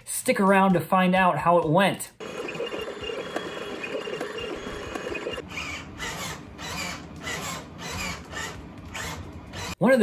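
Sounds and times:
stepper motors whirring: 2.2s - 9.8s.

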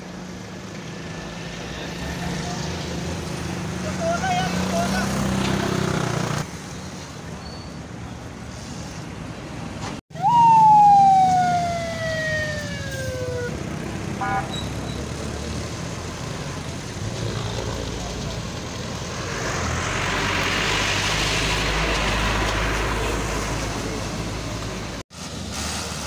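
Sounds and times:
road and engine noise: 0.0s - 26.0s
ambulance siren wail: 10.1s - 14.4s.

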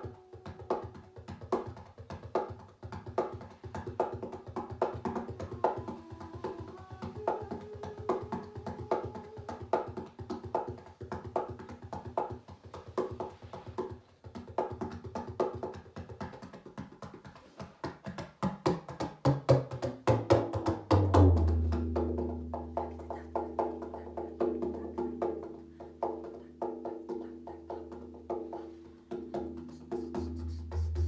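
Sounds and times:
tabla strokes: 0.0s - 31.0s.

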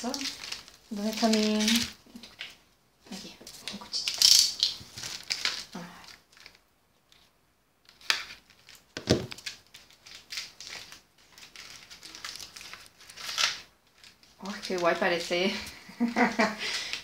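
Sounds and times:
package scraping and rustling: 3.6s - 7.3s, 7.9s - 14.9s.

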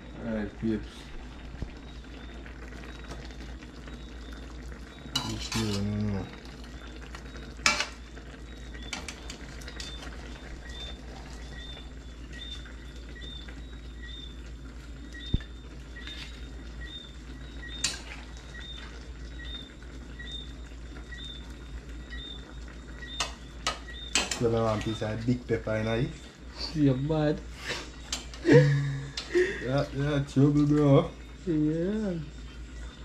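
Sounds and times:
stew simmering in pan: 0.0s - 33.0s
faint high chirp: 1.6s - 33.0s.

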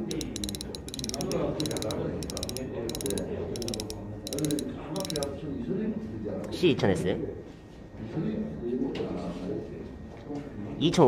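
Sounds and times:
fishing reel drag clicking: 0.1s - 5.3s.

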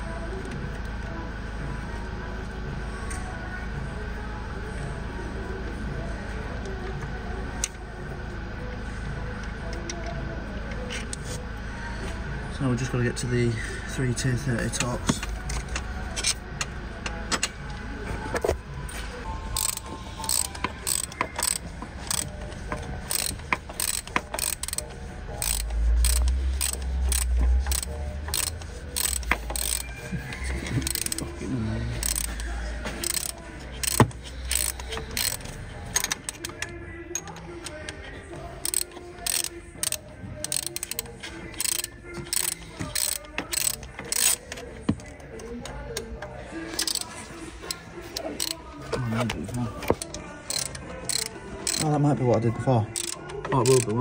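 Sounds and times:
hand ratchet clicking: 19.6s - 38.0s, 38.6s - 52.0s, 53.0s - 54.0s.

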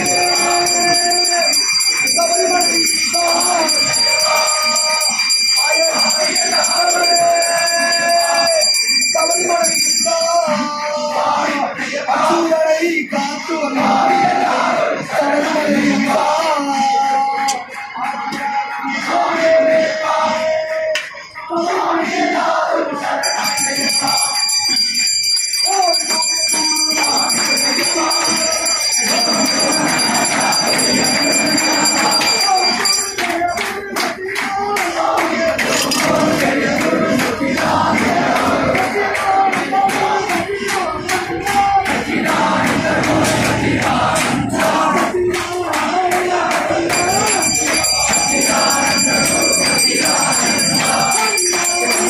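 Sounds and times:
crowd chanting in unison: 0.0s - 8.6s, 9.3s - 24.5s, 25.8s - 52.0s
temple bells ringing: 0.0s - 10.6s, 23.2s - 33.7s, 46.9s - 52.0s
many voices: 0.0s - 52.0s.

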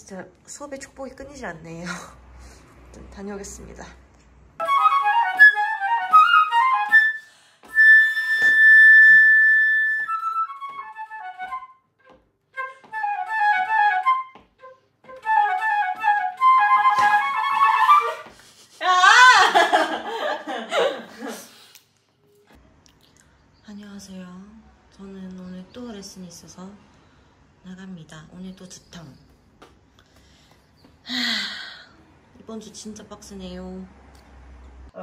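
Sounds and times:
flute playing fast runs: 4.6s - 11.8s, 12.6s - 18.3s
person laughing: 18.3s - 21.6s.

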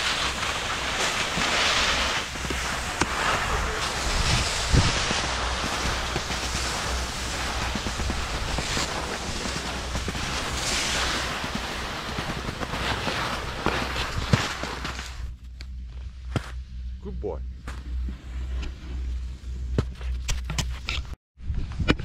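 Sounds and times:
wind rushing across microphone: 0.0s - 15.0s
skis hissing over snow: 0.0s - 15.3s.

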